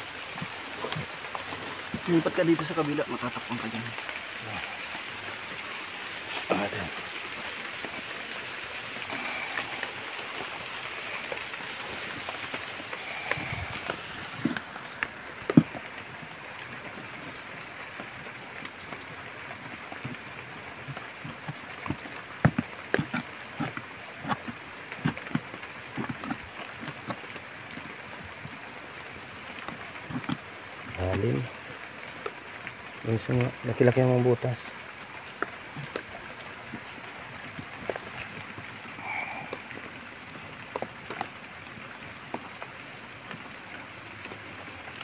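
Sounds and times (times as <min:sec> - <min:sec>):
soil scraping and knocks: 0:11.8 - 0:16.0, 0:19.6 - 0:27.3, 0:35.4 - 0:39.6.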